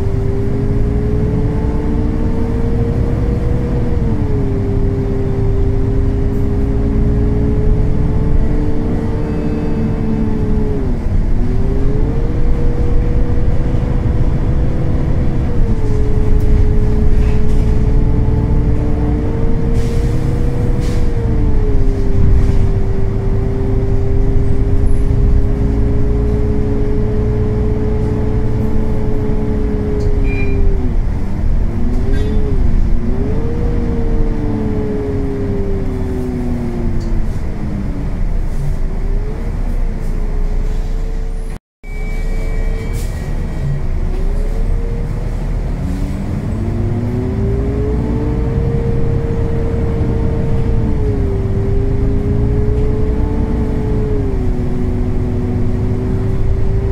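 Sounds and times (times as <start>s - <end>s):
bus engine drone: 0.0s - 56.9s.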